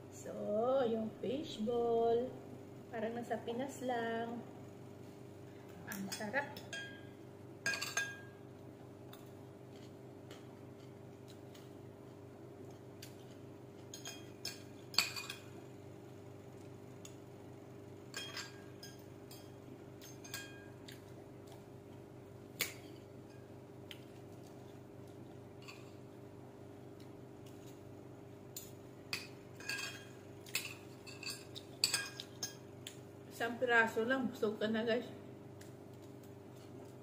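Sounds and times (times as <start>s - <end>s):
steady low hum: 0.0s - 37.0s
cutlery clinking on ceramic plate: 6.0s - 7.1s, 7.7s - 8.3s, 18.1s - 21.0s, 29.2s - 32.6s.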